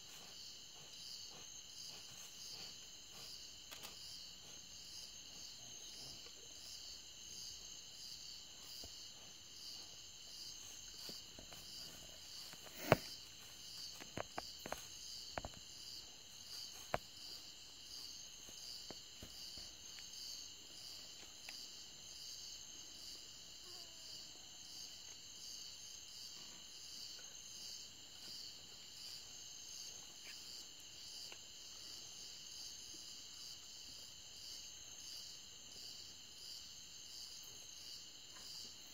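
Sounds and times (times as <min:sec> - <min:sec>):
crickets pulsing at night: 0:00.0 - 0:38.9.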